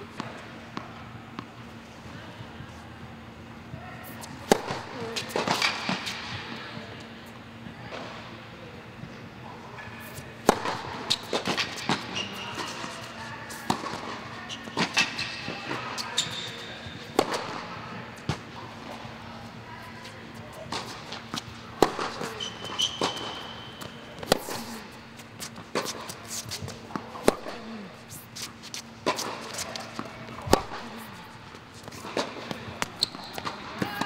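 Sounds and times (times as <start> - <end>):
tennis balls bouncing on court: 0.1 - 1.7, 4.0 - 6.8, 10.0 - 19.2, 20.0 - 34.0
tennis balls struck by racquets: 4.0 - 6.6, 10.0 - 19.2, 20.0 - 34.0.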